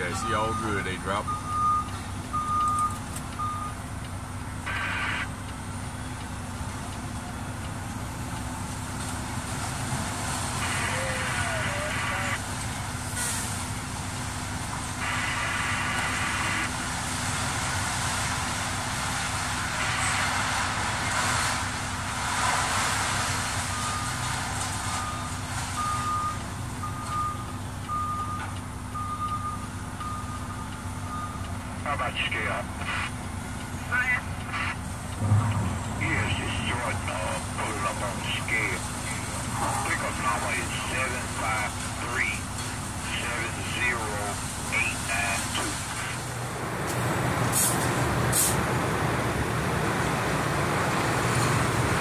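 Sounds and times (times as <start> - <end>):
backup alarm beeping: 0.0 - 3.8, 25.0 - 31.6
truck engine idling: 0.0 - 22.4, 23.1 - 52.0
loader and excavator working: 0.0 - 52.0.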